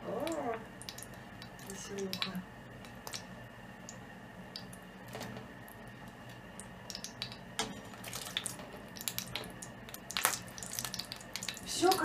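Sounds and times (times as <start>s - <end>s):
potatoes splashing into broth: 6.9s - 12.0s.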